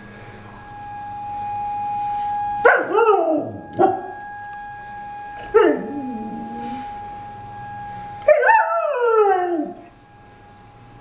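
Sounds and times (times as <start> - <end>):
tornado warning siren wailing: 0.0 - 11.0
dog howling: 5.3 - 7.1, 8.2 - 9.9.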